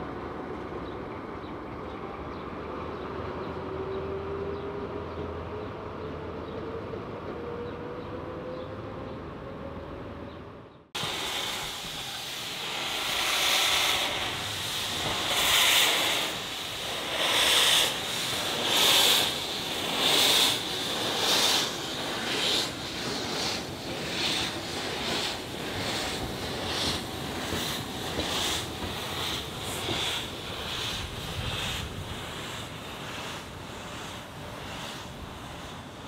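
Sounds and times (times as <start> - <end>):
steam hissing: 11.0 - 36.0
steam locomotive exhaust chuffs: 11.0 - 36.0.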